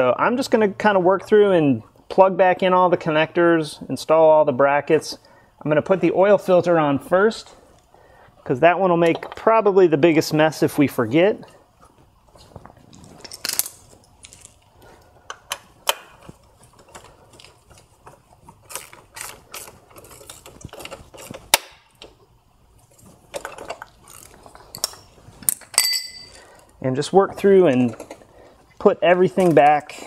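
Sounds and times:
metal tool clinks: 24.7s - 26.6s.

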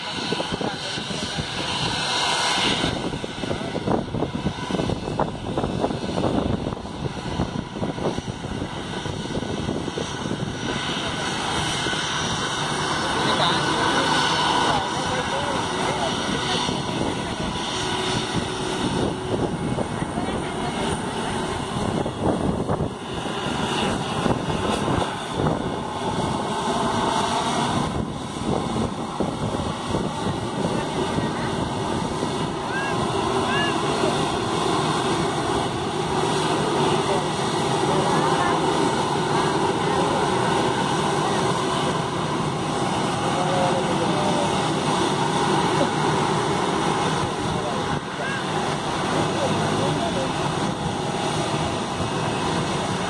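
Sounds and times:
jet engines rumbling: 0.0s - 53.0s.

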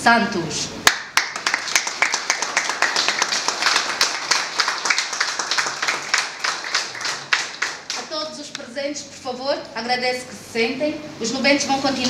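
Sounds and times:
crowd applauding: 0.9s - 8.1s.

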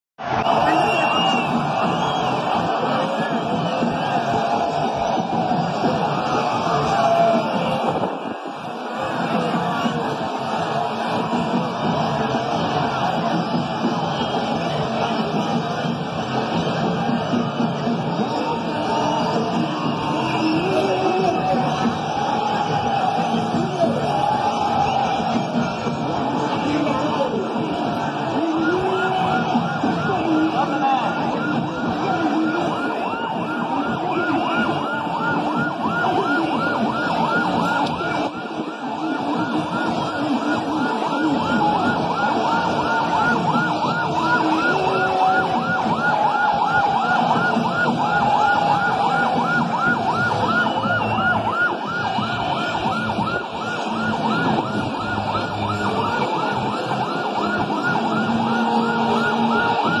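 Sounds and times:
ambulance siren yelping: 0.2s - 60.0s
din of a large crowd: 0.2s - 60.0s.

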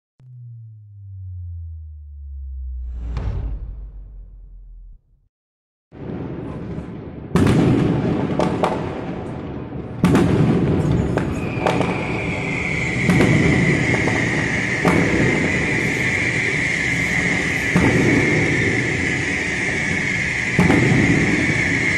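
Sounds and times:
fireworks bangs with echo: 6.0s - 21.9s
fireworks crackle: 6.0s - 21.9s
high hiss: 12.0s - 21.9s.

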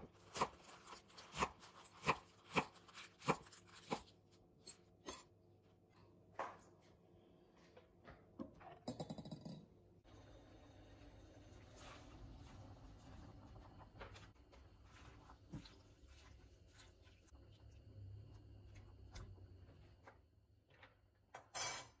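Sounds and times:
water boiling in a pot: 10.0s - 20.4s.

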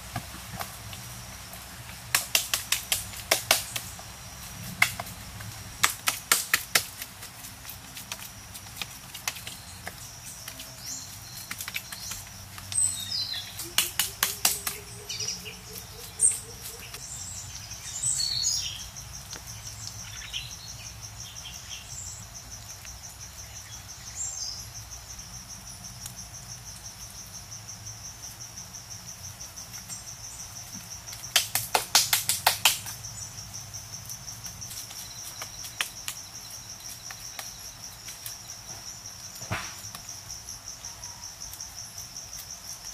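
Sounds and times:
insects trilling: 0.0s - 42.9s
bird chirps: 9.4s - 22.2s.

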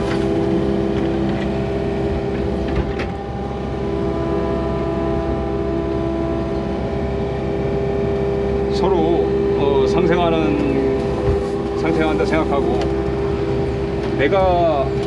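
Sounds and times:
constant whine: 0.0s - 15.0s
excavator engine rumble: 0.0s - 15.0s.

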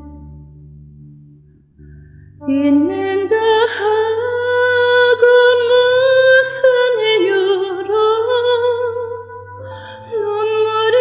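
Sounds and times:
soft backing track: 0.0s - 11.0s
woman singing slow song: 2.4s - 11.0s.

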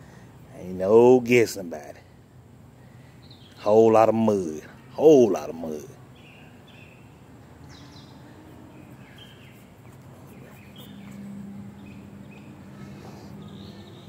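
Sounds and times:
low steady hum: 0.0s - 14.0s
bird chirps: 2.8s - 3.8s, 4.4s - 14.0s.

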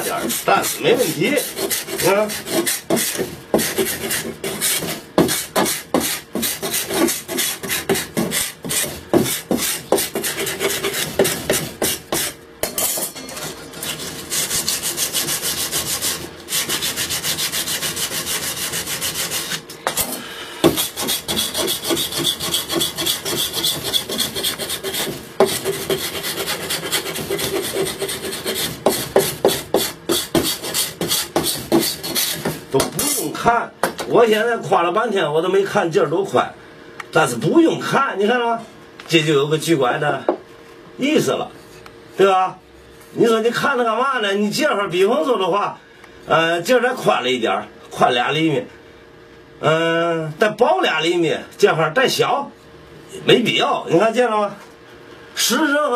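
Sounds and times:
steel scraper scraping wood: 0.0s - 12.4s, 13.2s - 32.6s.

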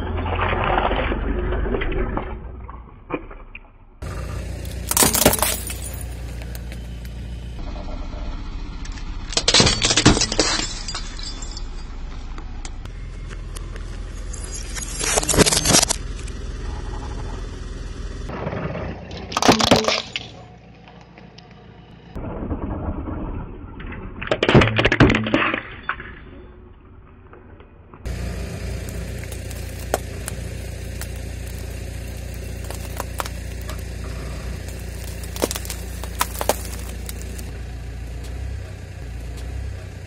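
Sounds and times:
car engine running: 4.0s - 19.2s, 28.1s - 40.0s
plastic lighters cracking under tyre: 28.1s - 37.5s.

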